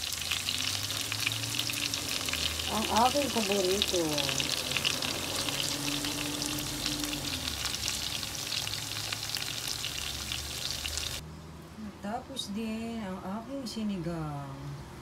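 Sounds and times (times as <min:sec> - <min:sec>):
slices sizzling in hot oil: 0:00.0 - 0:11.2.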